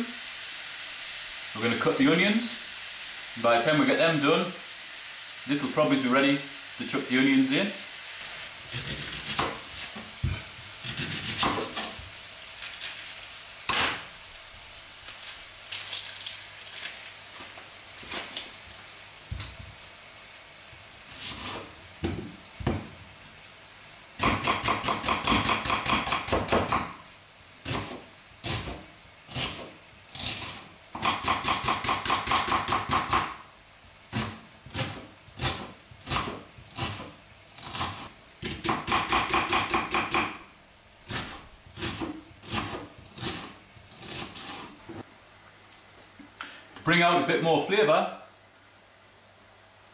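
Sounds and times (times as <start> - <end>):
knife chopping on wooden board: 8.8 - 12.0, 24.2 - 26.9, 27.7 - 33.3, 34.2 - 40.4, 41.1 - 44.7.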